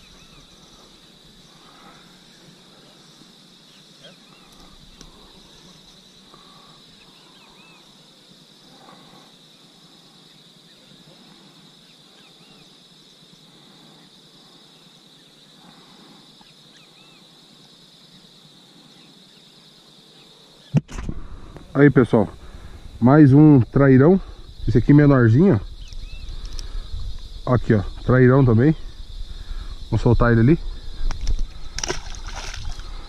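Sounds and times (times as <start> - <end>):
faint insect chorus trilling: 0.0 - 33.0
brief insect chirps: 25.7 - 27.3.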